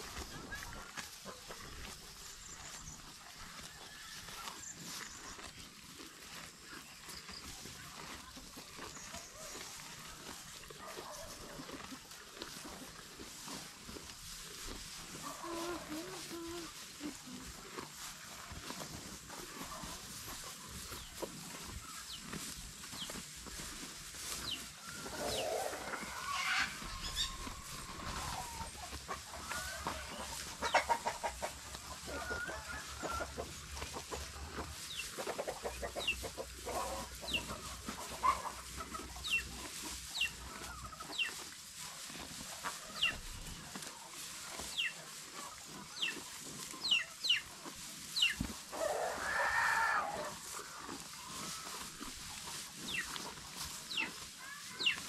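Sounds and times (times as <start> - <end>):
birds chirping: 20.4 - 32.4.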